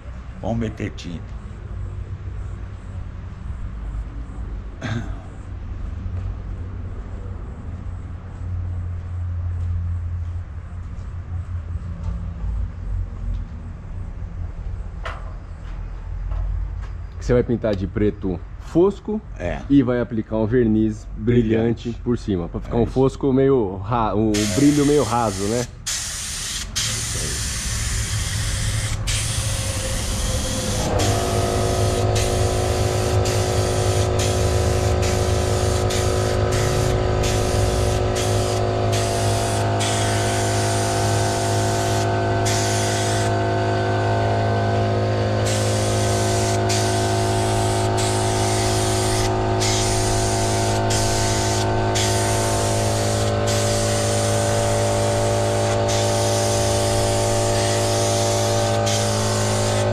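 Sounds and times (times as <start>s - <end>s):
air compressor motor humming: 24.3s - 59.9s
spray gun hissing: 24.4s - 43.4s, 45.4s - 59.9s.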